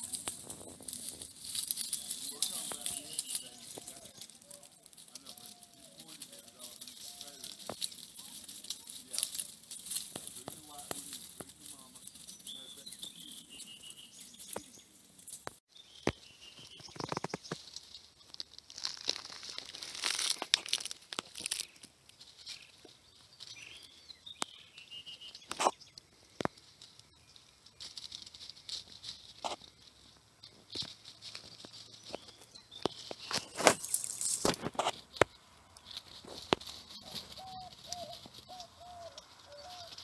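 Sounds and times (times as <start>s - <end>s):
animal rustling through dry leaves: 0.0s - 15.6s, 17.2s - 24.1s, 26.5s - 40.0s
sharp cracks of twigs: 16.8s - 22.9s, 25.3s - 27.1s, 30.6s - 40.0s.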